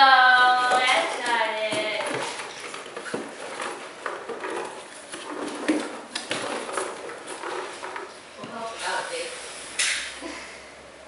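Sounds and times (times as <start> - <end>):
cardboard rustling and tapping: 0.6 - 8.1.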